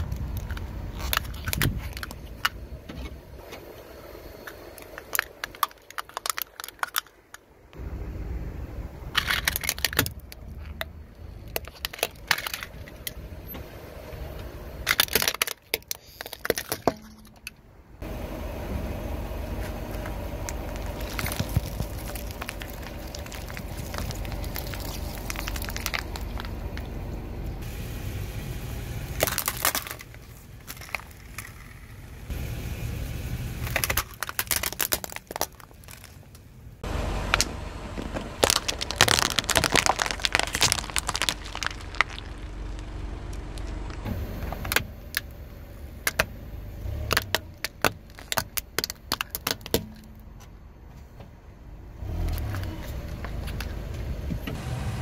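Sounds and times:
tyre crushing brittle objects: 0:00.0 - 0:02.6, 0:04.4 - 0:07.4, 0:09.1 - 0:10.8, 0:11.4 - 0:13.2, 0:14.8 - 0:17.5, 0:20.0 - 0:26.9, 0:29.2 - 0:32.0, 0:33.6 - 0:36.4, 0:37.3 - 0:42.9, 0:46.0 - 0:50.2
car rumbling: 0:00.0 - 0:55.0.

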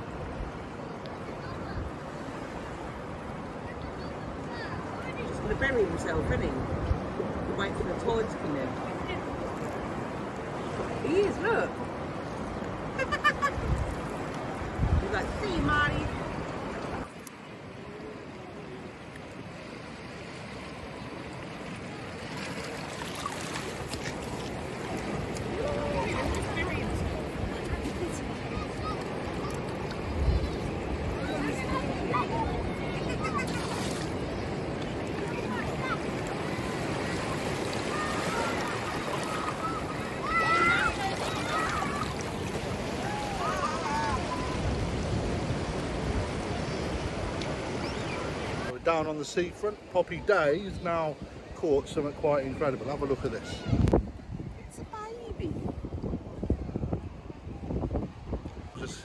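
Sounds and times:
waves washing over wet sand: 0:00.0 - 0:59.0
wind on microphone: 0:09.1 - 0:17.1, 0:23.2 - 0:48.7, 0:53.3 - 0:59.0
faint distant calls: 0:28.2 - 0:48.7.

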